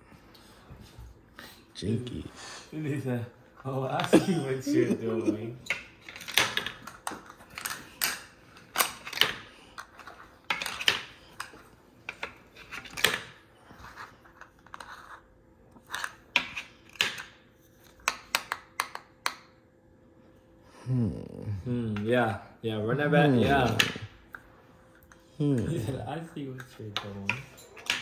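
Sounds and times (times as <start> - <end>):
plastic checkers clacking: 5.7 - 13.4, 15.9 - 19.4.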